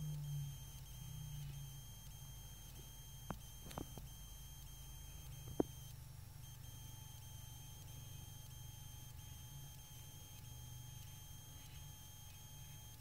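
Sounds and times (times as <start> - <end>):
high-pitched whine: 0.0 - 13.0
low hum: 0.0 - 13.0.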